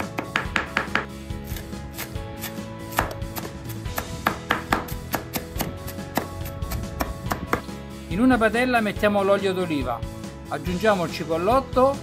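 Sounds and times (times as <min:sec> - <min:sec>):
knife chopping on wooden board: 0:00.0 - 0:07.7.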